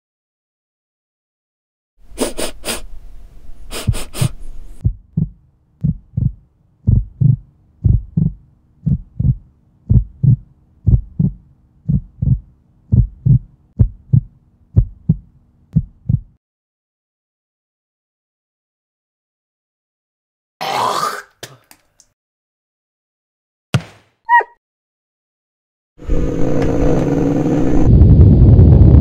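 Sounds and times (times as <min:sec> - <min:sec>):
dog sniffing: 0:02.1 - 0:02.9, 0:03.7 - 0:04.6
low steady hum: 0:02.8 - 0:16.4
heartbeat sound effect: 0:03.7 - 0:16.4.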